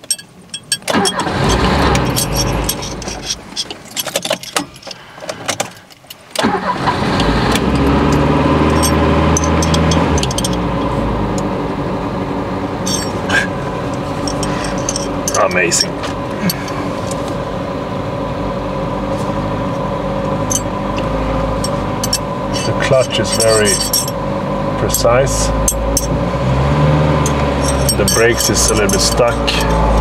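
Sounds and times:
car engine cranking on starter: 0:00.8 - 0:17.4, 0:19.7 - 0:30.0
car engine revving and idling: 0:00.9 - 0:03.6, 0:06.4 - 0:30.0.

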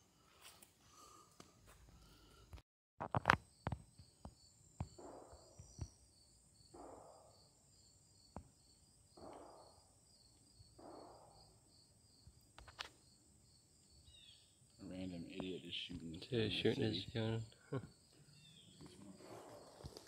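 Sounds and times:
insects chirping: 0:03.2 - 0:20.0.

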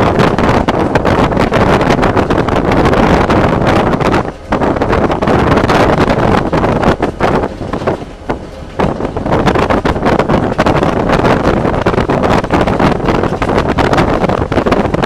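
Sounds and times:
diesel locomotive running: 0:00.0 - 0:15.0
wind buffeting microphone: 0:00.0 - 0:15.0.

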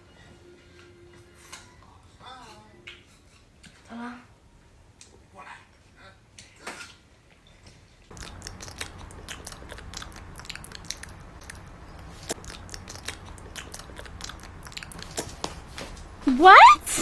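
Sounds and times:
puppies chewing wire: 0:08.1 - 0:16.0.

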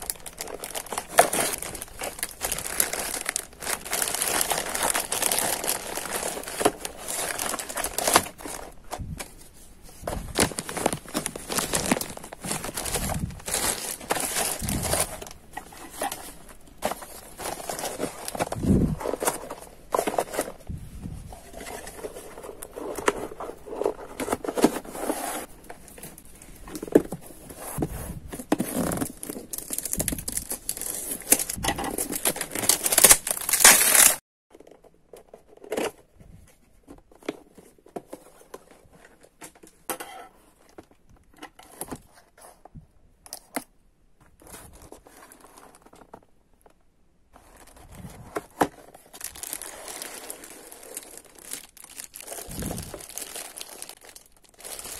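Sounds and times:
packaging tearing: 0:00.0 - 0:08.7, 0:28.8 - 0:34.2, 0:49.2 - 0:54.9
packaging rustling and crinkling: 0:00.0 - 0:34.7, 0:44.2 - 0:54.9.

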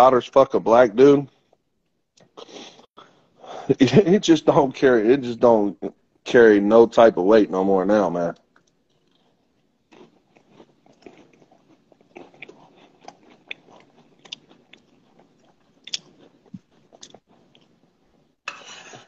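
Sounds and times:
person chewing crunchy food: 0:08.5 - 0:19.0.

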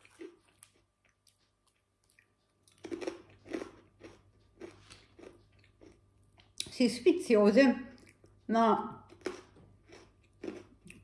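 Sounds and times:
potato chips crunching: 0:00.0 - 0:06.0, 0:09.1 - 0:11.0.

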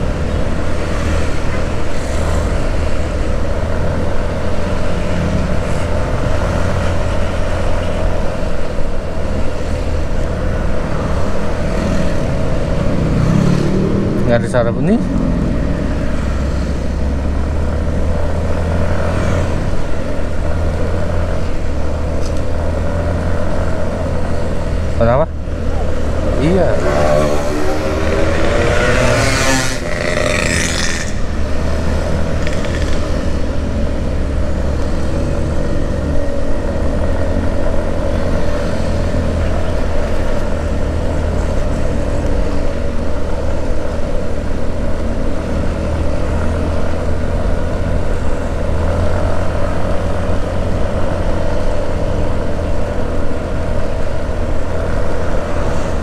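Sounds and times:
motorcycle road noise: 0:00.0 - 0:56.0
pitch-shifting passing sound: 0:25.1 - 0:32.1.

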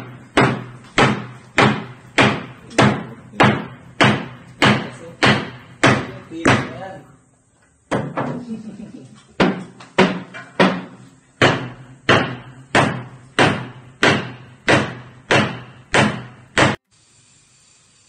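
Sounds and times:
hammering on wood: 0:00.0 - 0:07.0, 0:09.4 - 0:16.8.

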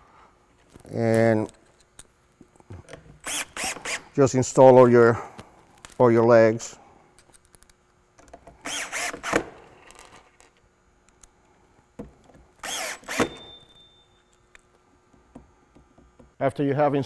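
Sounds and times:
cordless drill driving screws: 0:03.2 - 0:04.0, 0:08.6 - 0:09.6, 0:12.6 - 0:13.5.

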